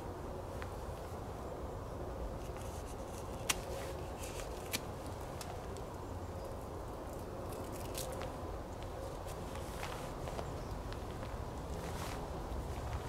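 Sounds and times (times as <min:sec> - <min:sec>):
dry bark cracking: 0:02.4 - 0:10.0.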